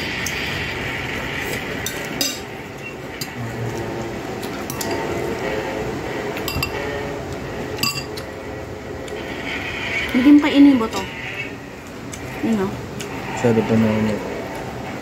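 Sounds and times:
steady background noise: 0.0s - 15.0s
dishes and cutlery clinking: 1.8s - 2.5s, 4.4s - 5.2s, 6.4s - 7.0s, 7.7s - 8.3s.

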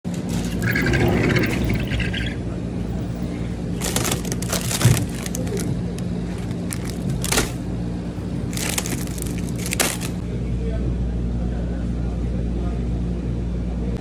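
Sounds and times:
freezer hum: 0.1s - 14.0s
crinkly rustles: 3.8s - 7.6s, 8.4s - 10.2s.

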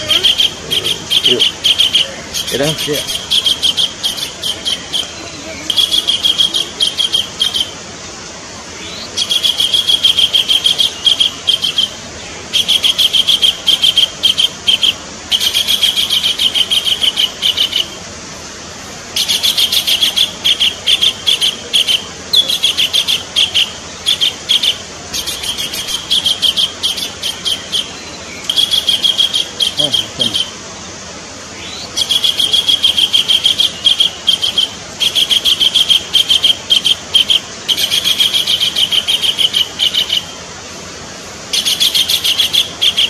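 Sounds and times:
kingfisher calling: 0.0s - 7.9s, 8.8s - 18.0s, 19.1s - 30.7s, 31.4s - 40.5s, 41.4s - 43.0s.

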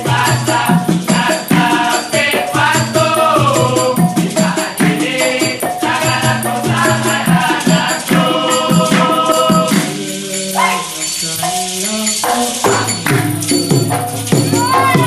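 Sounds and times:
group singing: 0.0s - 15.0s
maraca shaking: 0.0s - 15.0s
chorus clapping in unison: 7.8s - 10.0s, 13.0s - 13.4s.

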